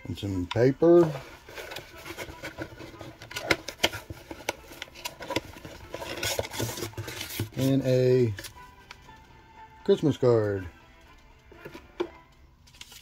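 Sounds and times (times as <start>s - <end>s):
packing paper crinkling: 1.2s - 8.6s, 12.7s - 13.0s.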